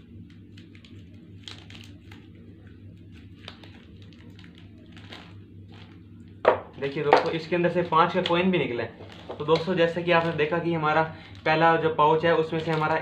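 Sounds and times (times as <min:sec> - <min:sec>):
steady low hum: 0:00.0 - 0:13.0
plastic snack pouch crinkling: 0:00.3 - 0:02.4, 0:03.0 - 0:06.1, 0:11.2 - 0:13.0.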